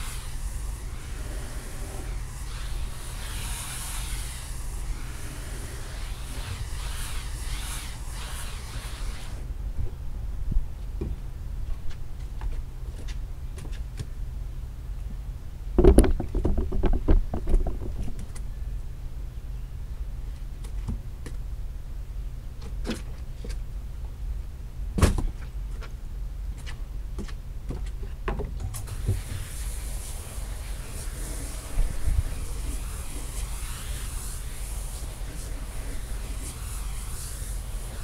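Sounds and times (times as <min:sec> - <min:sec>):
hiss: 0:00.0 - 0:09.5, 0:28.8 - 0:38.0
steady low hum: 0:00.0 - 0:16.1, 0:28.8 - 0:38.0
rug knocking on wooden boards: 0:15.8 - 0:18.2.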